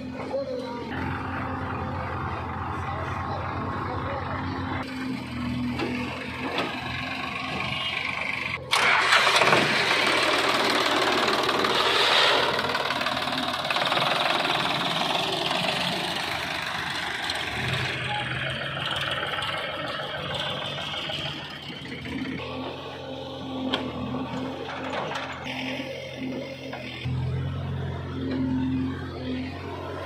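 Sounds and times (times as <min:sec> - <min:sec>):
diesel engines running: 0:00.0 - 0:30.0.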